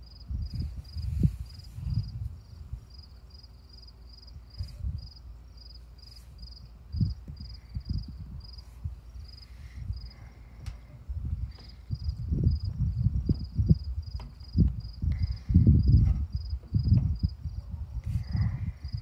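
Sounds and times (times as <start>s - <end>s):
cricket chirping: 0.0s - 10.5s, 11.5s - 17.6s, 18.5s - 19.0s
low thumps on microphone: 9.8s - 19.0s.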